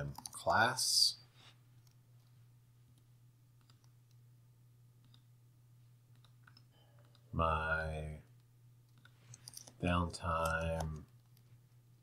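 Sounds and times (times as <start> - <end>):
steady low hum: 0.0 - 12.0
computer mouse clicks: 2.9 - 4.2, 5.0 - 5.3, 6.1 - 7.3, 8.4 - 9.8.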